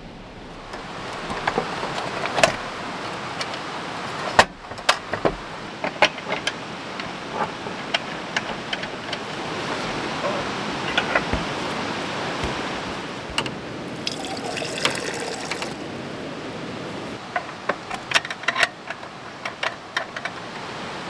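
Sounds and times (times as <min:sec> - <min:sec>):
camp stove case clicking: 0:00.6 - 0:15.8, 0:17.2 - 0:20.5
metal parts knocking on wood: 0:04.2 - 0:11.6, 0:17.3 - 0:20.4.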